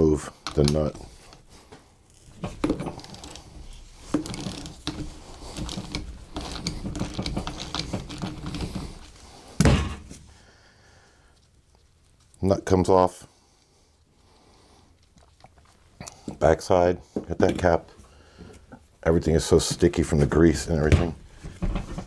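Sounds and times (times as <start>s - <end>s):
loud thunk: 9.6s - 10.1s.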